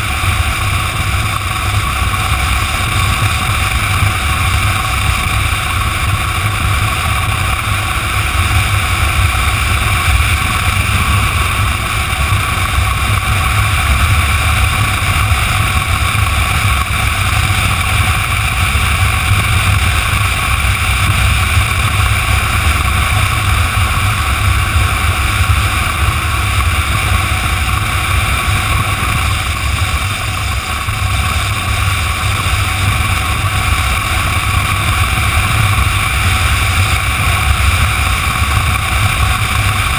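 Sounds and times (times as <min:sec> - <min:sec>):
motorcycle engine drone: 0:00.0 - 0:39.9
wind rushing over microphone: 0:00.0 - 0:39.9.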